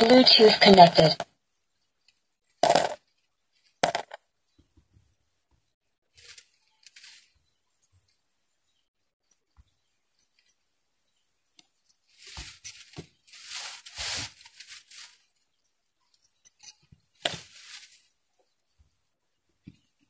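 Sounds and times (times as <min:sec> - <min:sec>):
rubbing noises: 0:12.1 - 0:15.3, 0:17.2 - 0:18.2.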